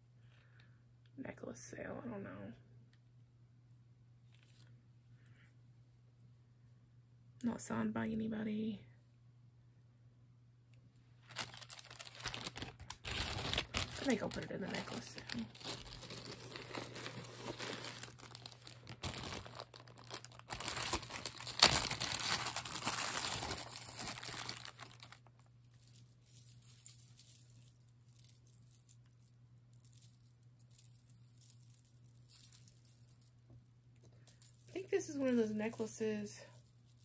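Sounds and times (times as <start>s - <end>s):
low steady hum: 0.0s - 37.0s
plastic bag crinkling: 11.2s - 29.2s.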